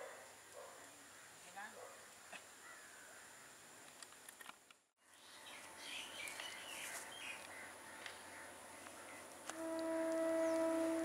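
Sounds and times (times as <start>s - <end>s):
birds chirping: 5.1s - 11.0s.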